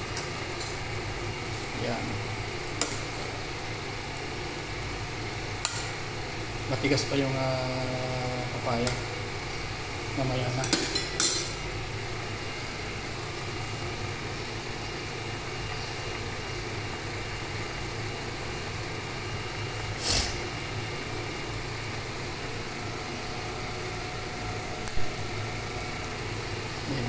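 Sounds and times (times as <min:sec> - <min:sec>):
low mechanical hum: 0:00.0 - 0:27.0
hiss: 0:19.8 - 0:20.5.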